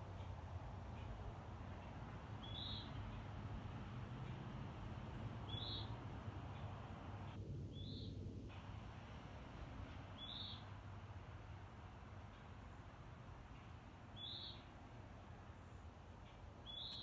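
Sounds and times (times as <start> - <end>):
bird high-pitched call: 2.4 - 3.0, 5.5 - 5.9, 7.8 - 8.2, 10.2 - 10.6, 14.2 - 14.7, 16.6 - 17.0.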